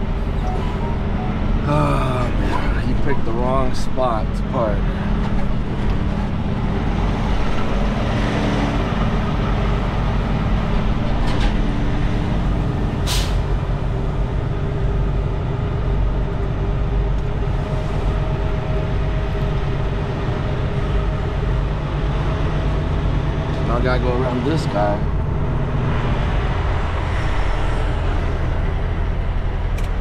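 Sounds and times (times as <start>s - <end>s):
diesel truck engine running: 0.0s - 30.0s
air brake hiss: 13.1s - 13.5s.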